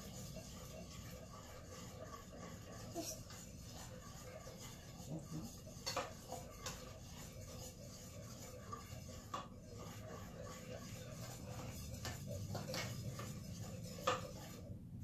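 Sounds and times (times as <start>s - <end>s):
spoon stirring batter in metal bowl: 0.0s - 15.0s.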